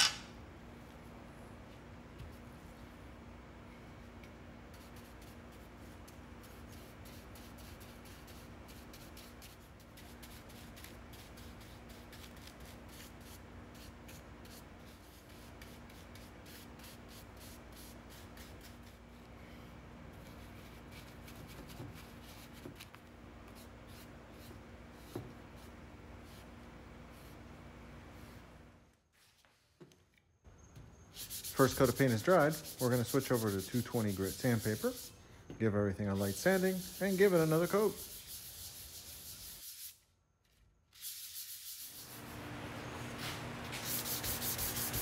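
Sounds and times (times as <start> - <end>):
scratchy brush strokes: 31.2 - 35.1, 36.1 - 39.9, 43.2 - 45.0
faint hum: 42.0 - 45.0.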